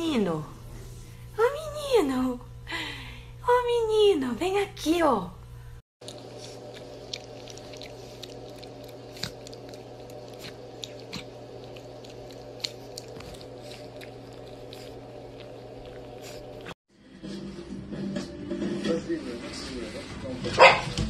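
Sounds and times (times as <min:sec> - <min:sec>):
steady low hum: 0:00.0 - 0:16.8
dog chewing and licking: 0:06.0 - 0:16.8.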